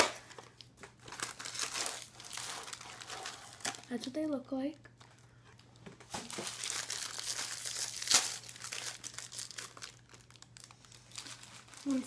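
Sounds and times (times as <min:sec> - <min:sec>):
plastic wrapper crinkling and tearing: 0:00.0 - 0:04.3, 0:05.0 - 0:12.0.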